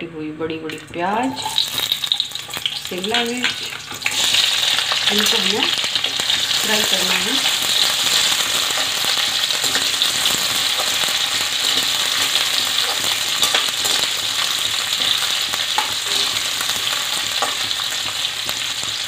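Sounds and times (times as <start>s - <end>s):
spoon scraping pan: 0.7s - 19.0s
vegetables sizzling in oil: 0.7s - 19.0s.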